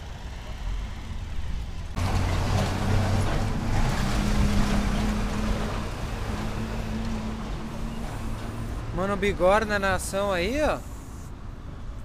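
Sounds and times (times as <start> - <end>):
road noise: 0.0 - 12.0.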